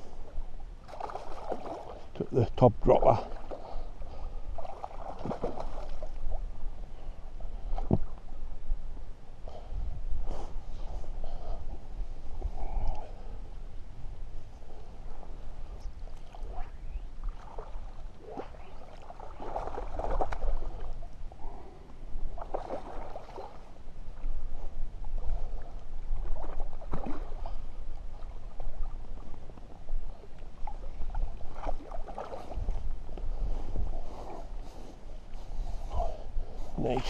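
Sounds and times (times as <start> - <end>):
fish splashing in water: 0.8 - 2.0, 4.6 - 6.2, 17.2 - 20.9, 22.4 - 23.7
wind rumble on microphone: 4.0 - 37.0.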